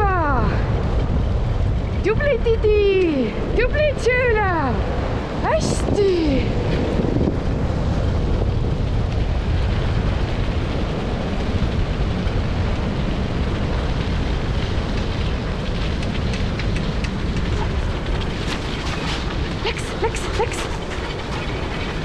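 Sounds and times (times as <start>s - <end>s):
wheels rolling over dirt road: 0.0s - 22.0s
wind on microphone: 0.0s - 22.0s
faint light ticks: 14.6s - 18.3s.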